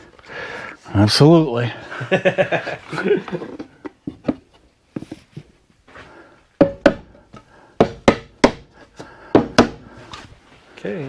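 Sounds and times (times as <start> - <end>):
knocks on wooden boards: 6.6 - 9.9.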